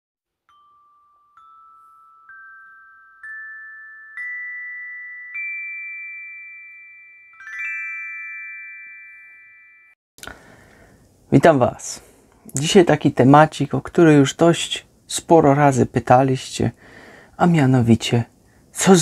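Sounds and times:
bell-like jingle notes: 0:00.5 - 0:10.0.

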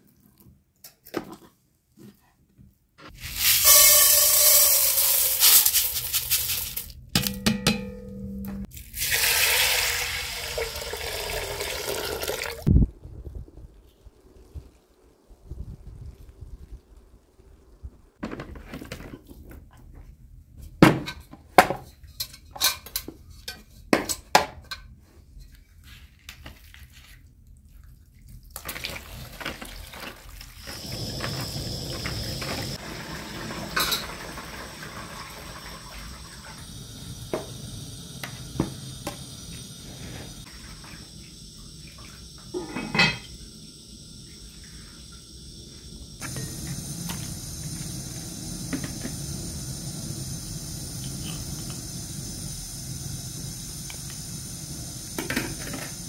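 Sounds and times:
gas burner hissing: 0:03.1 - 0:06.9, 0:30.6 - 0:56.0
pots and bowls knocking: 0:07.2 - 0:08.7
water poured from a jug: 0:08.7 - 0:12.7, 0:26.4 - 0:36.3
dishes and utensils clinking: 0:42.6 - 0:43.3.

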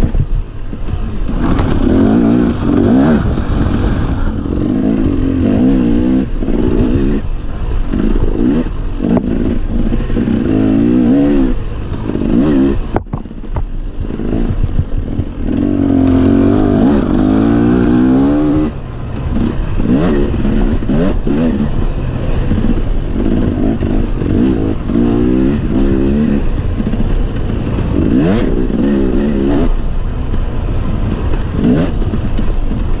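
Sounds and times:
dirt bike engine revving: 0:00.7 - 0:33.0.

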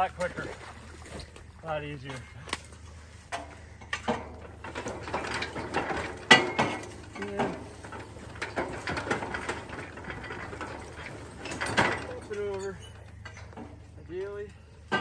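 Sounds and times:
steel pipe knocking and scraping: 0:03.2 - 0:15.0.

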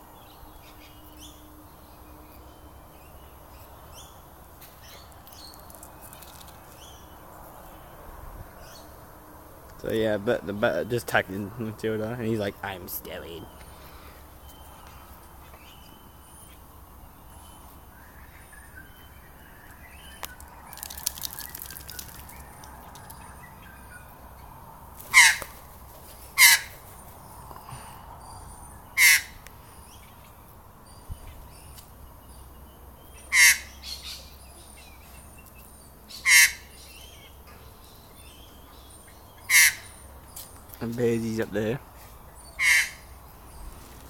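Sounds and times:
harsh caw-like bird calls: 0:13.3 - 0:16.4, 0:25.0 - 0:30.2, 0:33.2 - 0:34.2, 0:36.1 - 0:37.4, 0:39.3 - 0:40.1, 0:42.0 - 0:43.5.

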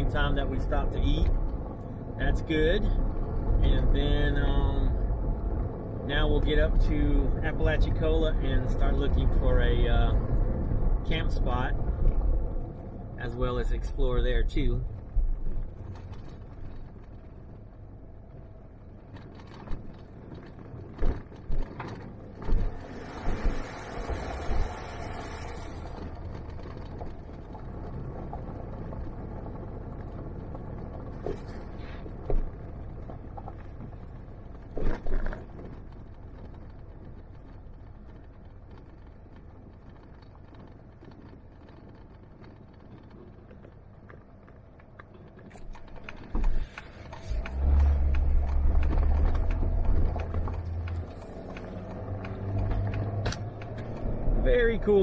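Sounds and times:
car engine and tyres rumbling: 0:00.0 - 0:55.0
knocks and thumps over bumps: 0:14.6 - 0:24.9, 0:25.8 - 0:55.0
hissing noise: 0:22.5 - 0:26.0.

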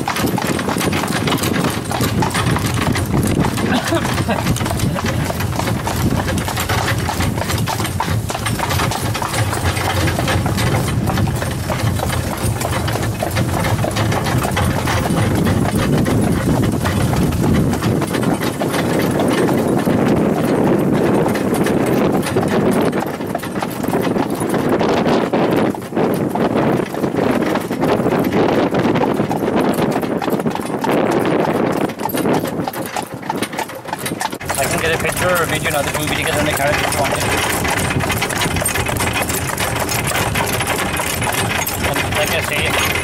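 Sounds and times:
cart wheels rumbling: 0:00.0 - 0:43.0
hooves clip-clopping on pavement: 0:00.0 - 0:43.0.

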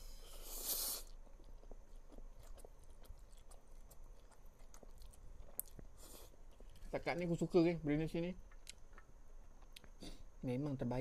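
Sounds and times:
person chewing noodles: 0:00.0 - 0:07.0, 0:08.4 - 0:10.1.

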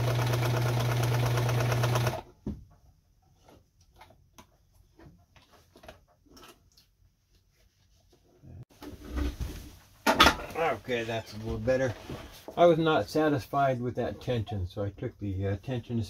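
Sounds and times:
sewing machine running: 0:00.0 - 0:02.3.

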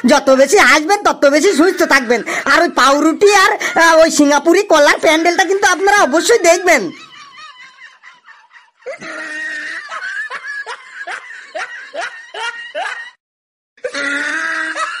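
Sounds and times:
high-pitched cartoon laughter: 0:06.5 - 0:13.2, 0:13.8 - 0:15.0.

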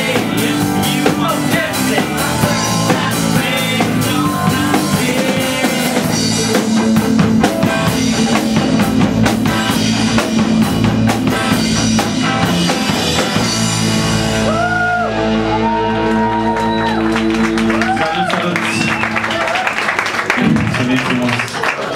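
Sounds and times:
man singing: 0:00.0 - 0:08.4
drum kit with crashing cymbals: 0:00.0 - 0:14.6
electric guitar: 0:00.0 - 0:20.7
bass guitar: 0:00.0 - 0:20.9.

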